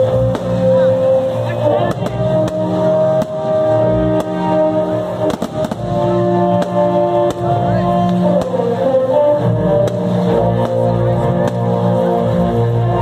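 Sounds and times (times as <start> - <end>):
music playing: 0.0 - 13.0
firework shells bursting: 5.1 - 8.7.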